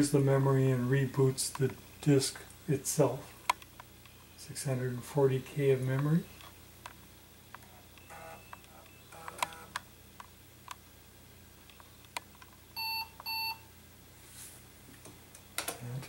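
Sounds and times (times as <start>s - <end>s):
floppy drive clicks: 5.9s - 10.8s
short electronic beeps: 12.8s - 13.6s.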